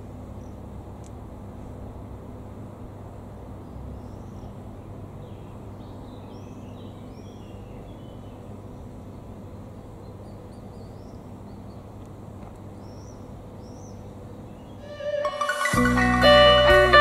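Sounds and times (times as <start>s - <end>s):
faint hum: 0.0s - 17.0s
low outdoor rumble: 0.0s - 17.0s
small bird chirping: 3.6s - 12.0s, 12.6s - 16.2s.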